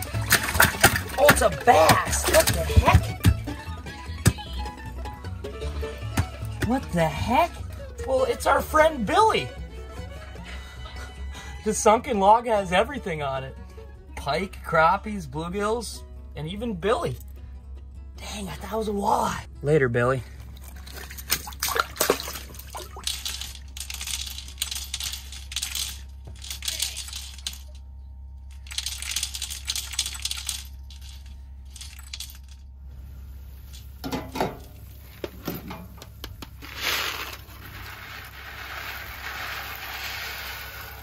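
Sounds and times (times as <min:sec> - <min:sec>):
ice chips clinking: 0:00.0 - 0:03.2, 0:20.7 - 0:27.7, 0:28.5 - 0:32.7, 0:36.6 - 0:41.0
pasta pouring into boiling water: 0:36.6 - 0:41.0.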